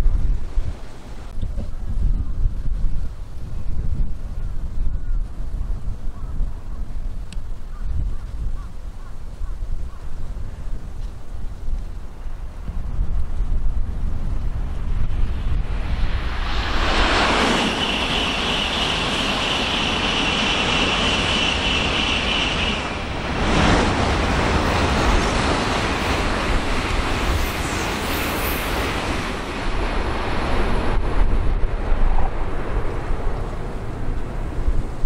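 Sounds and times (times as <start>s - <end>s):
wind rumble on microphone: 0.0s - 35.0s
high-speed train passing: 12.0s - 35.0s.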